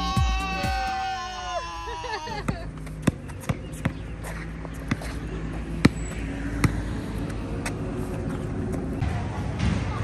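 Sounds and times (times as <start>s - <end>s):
basketball bouncing: 2.4s - 5.2s, 5.8s - 6.9s.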